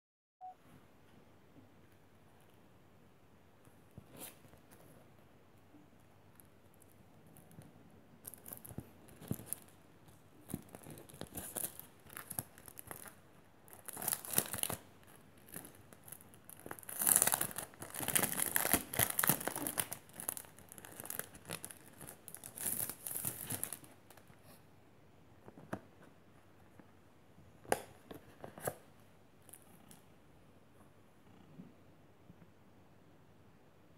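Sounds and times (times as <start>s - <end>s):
plastic packaging crinkling: 10.4s - 24.3s.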